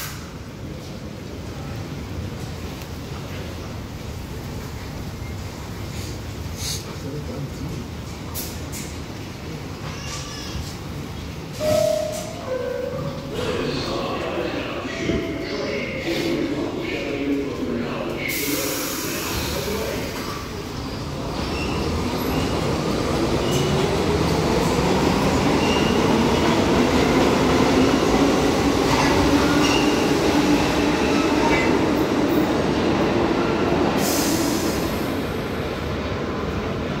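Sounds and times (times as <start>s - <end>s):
rumble of train cars: 0.0s - 37.0s
subway train motors whining: 0.0s - 37.0s.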